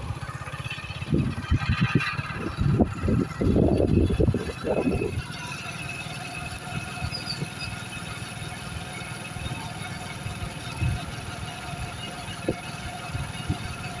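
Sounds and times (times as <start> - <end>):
motorbike engine running: 0.0 - 14.0
wind rumbling on microphone: 0.8 - 5.5, 10.3 - 14.0.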